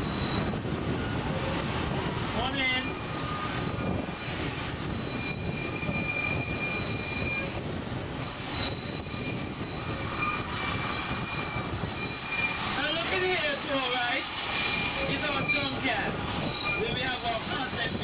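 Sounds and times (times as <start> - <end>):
train cars rumbling on track: 0.0 - 18.0
wheels squealing on rails: 0.0 - 18.0.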